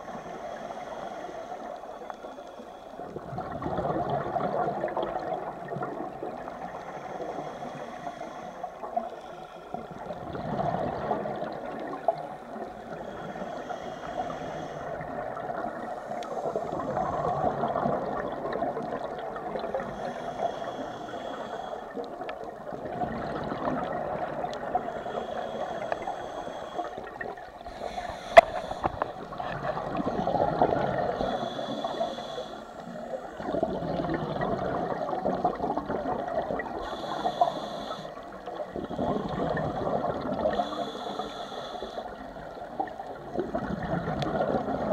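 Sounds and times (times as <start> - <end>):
regulator breathing hiss: 0.0 - 3.1, 6.5 - 10.0, 12.4 - 15.2, 15.8 - 17.4, 19.6 - 22.2, 24.6 - 29.4, 30.8 - 33.5, 36.7 - 39.2, 40.5 - 42.5
exhaled air bubbling: 2.9 - 8.2, 8.8 - 44.9.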